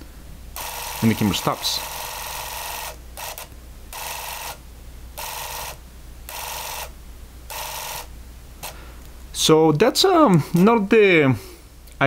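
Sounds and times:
camera motor running in bursts: 0:00.6 - 0:04.6, 0:05.2 - 0:06.9, 0:07.5 - 0:08.8.

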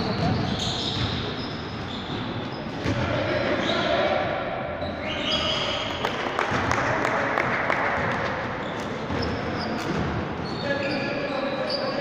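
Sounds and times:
sneaker squeaks: 0:00.0 - 0:04.0, 0:04.8 - 0:06.2, 0:08.2 - 0:12.0
echoing hall noise: 0:00.0 - 0:12.0.

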